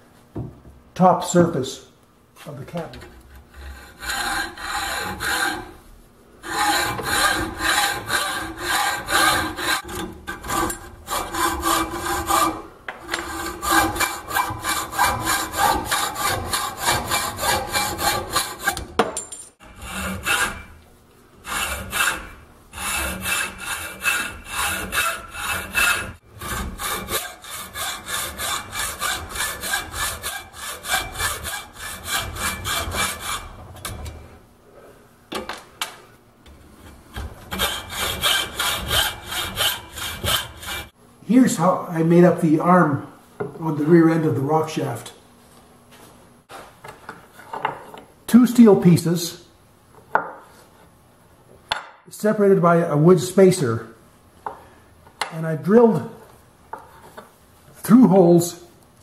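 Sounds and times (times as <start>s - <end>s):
hacksaw cutting steel: 3.6s - 5.7s, 6.4s - 18.9s, 19.6s - 20.8s, 21.4s - 34.1s, 37.1s - 40.9s.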